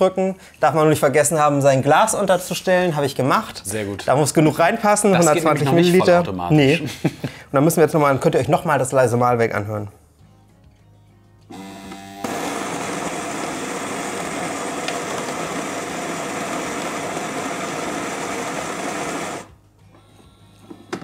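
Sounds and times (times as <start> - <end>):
coffee grinder grinding beans: 11.5 - 19.5.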